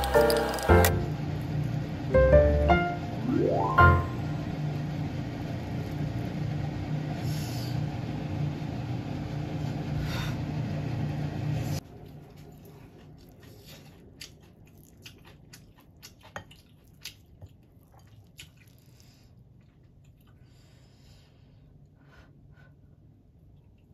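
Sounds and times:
chewing rice: 0:11.8 - 0:21.0.

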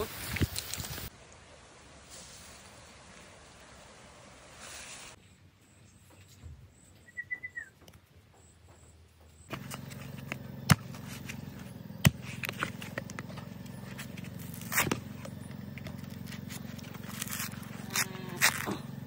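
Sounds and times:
steady low hum: 0:09.2 - 0:19.0
machete chopping coconut husk: 0:09.5 - 0:19.0
machete scraping stroke: 0:09.5 - 0:19.0.

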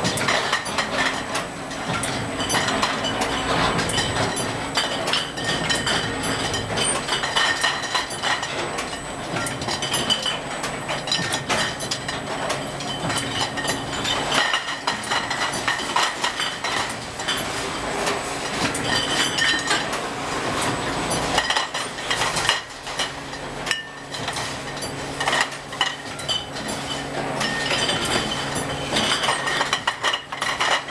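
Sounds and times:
glass bottles clinking: 0:00.1 - 0:17.5, 0:18.4 - 0:20.0, 0:21.1 - 0:30.9.

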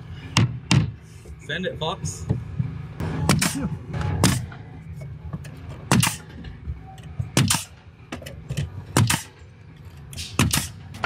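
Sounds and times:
nail gun firing: 0:05.9 - 0:06.3, 0:07.4 - 0:07.8, 0:09.0 - 0:09.4, 0:10.2 - 0:10.8.

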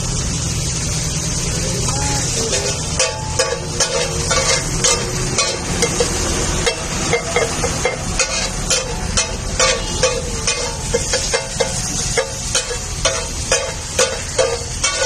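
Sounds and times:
vegetables frying in butter: 0:00.0 - 0:15.0
metal spatula clacking on griddle: 0:02.5 - 0:15.0.

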